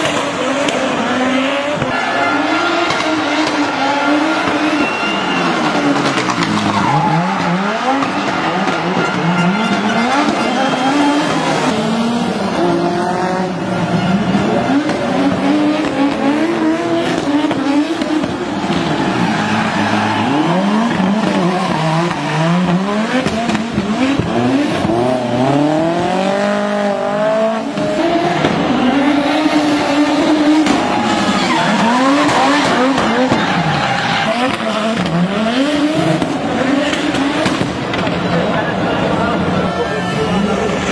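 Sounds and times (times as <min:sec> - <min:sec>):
car engine revving hard: 0:00.0 - 0:38.4
tyres squealing: 0:28.1 - 0:35.3.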